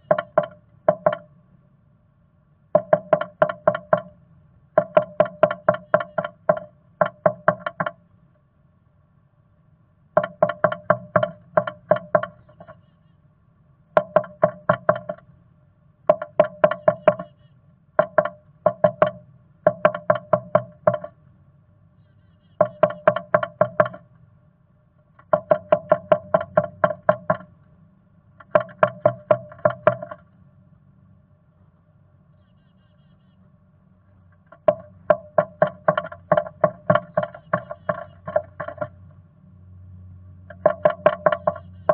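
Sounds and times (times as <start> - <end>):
bird pecking on wood: 0.0 - 1.3, 2.8 - 4.1, 4.8 - 8.0, 10.2 - 12.8, 14.0 - 15.2, 16.1 - 17.3, 18.0 - 21.2, 22.6 - 24.0, 25.2 - 27.5, 28.4 - 30.2, 34.4 - 39.0, 40.5 - 41.9.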